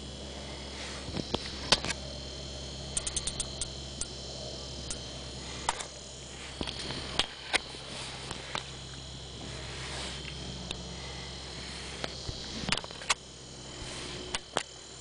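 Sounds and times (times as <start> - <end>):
low hum: 0.0 - 15.0
steady high whine: 0.0 - 15.0.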